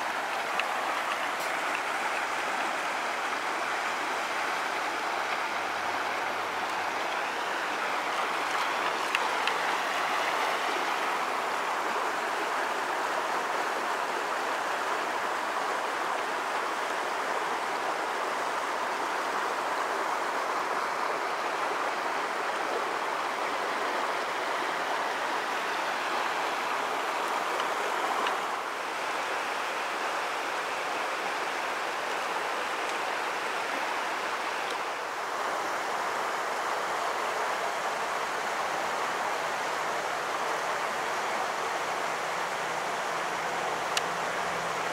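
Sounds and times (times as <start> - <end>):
stream rushing over boulders: 0.0 - 44.9
faint ticks: 0.2 - 1.9, 43.9 - 44.1.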